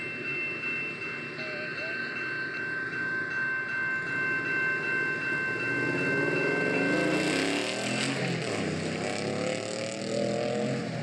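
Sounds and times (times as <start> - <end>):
engine revving: 5.7 - 11.0.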